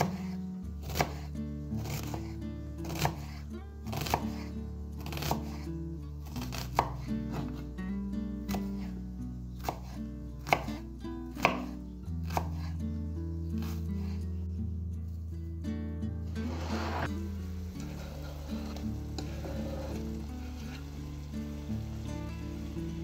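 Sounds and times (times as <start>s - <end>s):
soft background music: 0.0s - 23.0s
knife chopping on wooden board: 0.8s - 2.3s, 2.9s - 4.4s, 6.4s - 7.6s, 9.6s - 10.8s, 11.4s - 12.7s.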